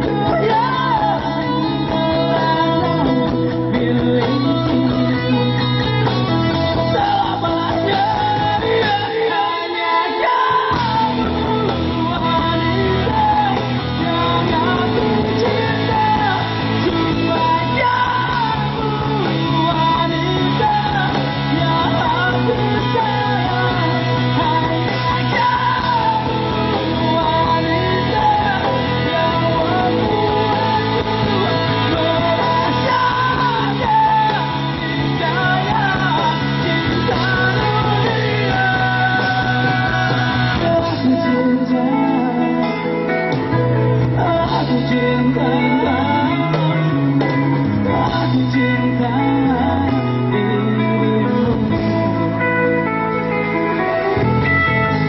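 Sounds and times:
rock band music with singer: 0.0s - 55.0s.

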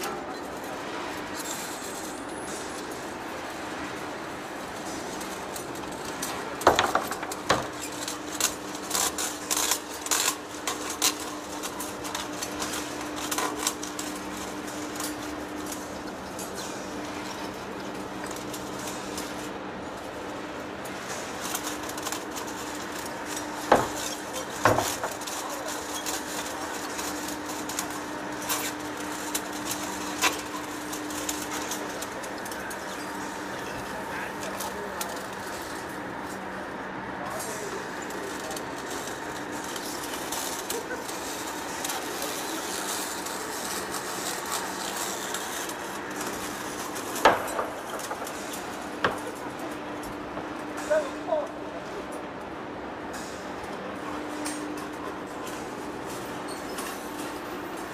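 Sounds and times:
metal chips clicking and rattling: 37.9s - 49.3s.

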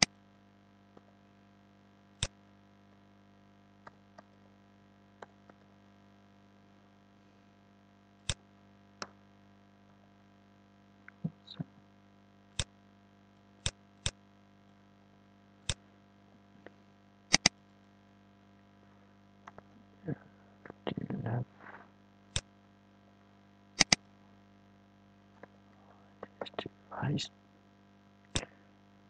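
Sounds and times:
low mains hum: 0.0s - 29.0s
keyboard and mouse clicks: 17.3s - 17.6s, 23.8s - 24.0s.

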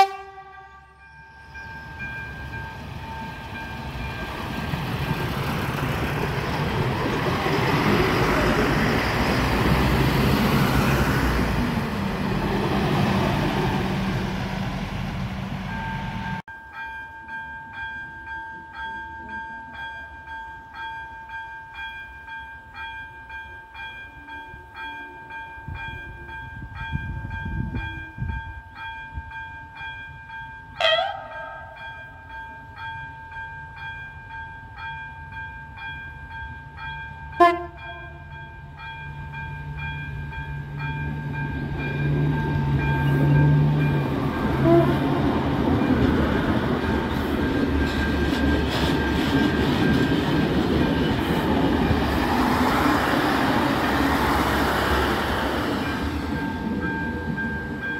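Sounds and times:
train horn blasts: 0.0s - 1.2s, 30.8s - 31.9s, 37.4s - 38.3s, 44.4s - 45.4s
level crossing warning bell: 0.0s - 14.0s, 15.7s - 57.9s
diesel railcar passing: 0.0s - 57.9s.

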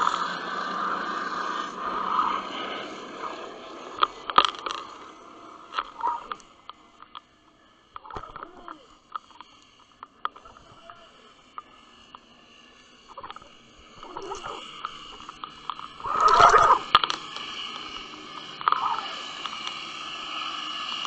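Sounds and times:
loud rush of noise: 0.0s - 7.0s
faint steady hum: 0.0s - 21.0s
underwater clicks and ticks: 3.9s - 7.3s, 7.9s - 12.2s, 13.1s - 19.8s.

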